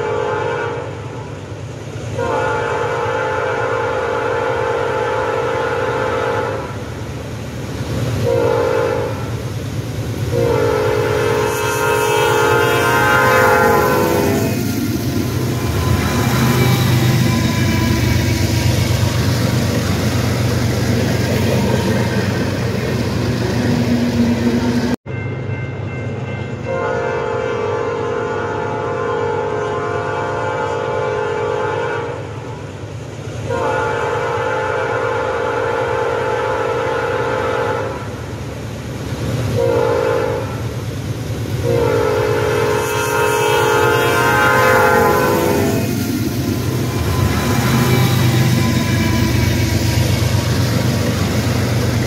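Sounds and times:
locomotive air horn: 0.0 - 1.1, 2.2 - 6.9, 8.2 - 9.4, 10.3 - 20.1, 26.7 - 32.4, 33.5 - 38.2, 39.6 - 40.6, 41.6 - 50.2
diesel locomotives rumbling past: 0.0 - 52.0.

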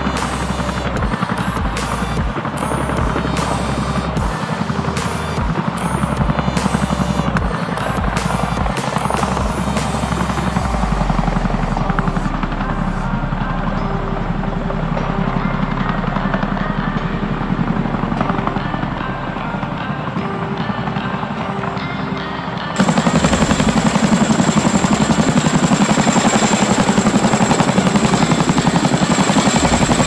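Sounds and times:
helicopter rotors thudding: 0.0 - 21.8, 22.8 - 30.0.

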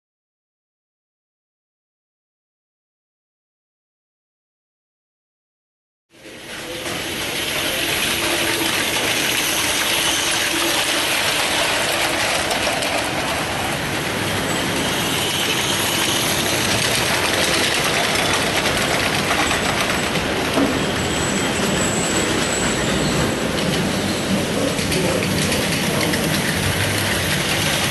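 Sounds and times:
model train rattling on metal track: 6.2 - 27.9.

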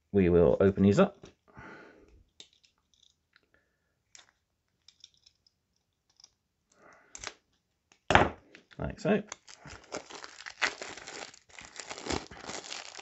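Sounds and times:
craft knife scraping plastic wrap: 9.4 - 13.0.

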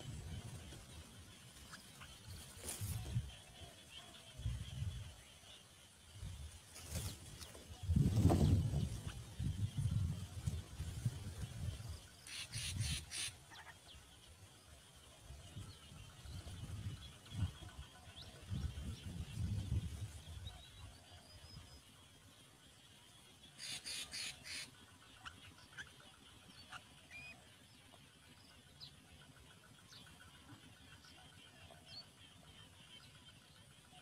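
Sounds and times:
nestling bird harsh rasps: 12.2 - 13.6, 23.6 - 24.7.

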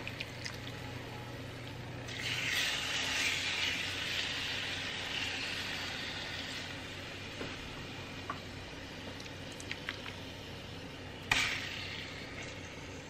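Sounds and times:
chicken sizzling in a pan: 2.1 - 8.6.

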